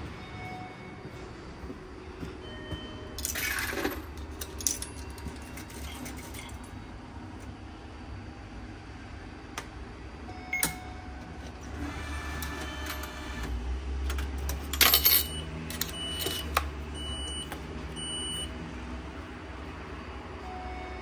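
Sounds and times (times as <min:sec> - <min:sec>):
printing mechanism whirring: 0:10.6 - 0:17.5.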